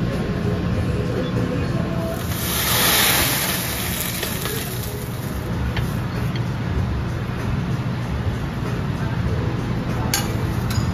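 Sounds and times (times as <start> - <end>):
loud hiss: 2.2 - 5.5.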